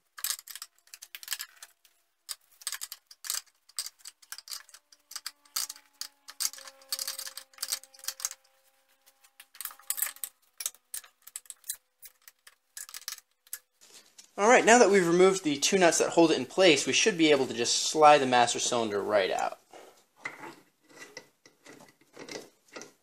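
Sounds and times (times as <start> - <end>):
ratchet wrench clicking: 2.3 - 8.6, 9.4 - 13.6.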